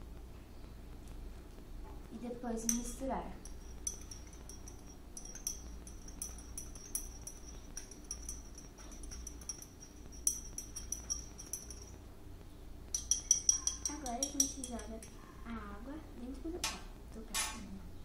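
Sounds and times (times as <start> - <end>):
spoon clinking in a glass: 2.7 - 12.0, 12.9 - 15.2.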